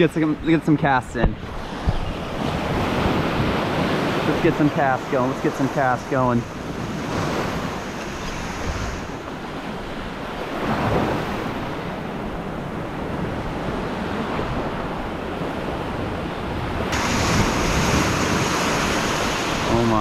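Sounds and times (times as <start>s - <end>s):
ocean surf rushing: 0.0s - 20.0s
wave washing in: 1.4s - 20.0s.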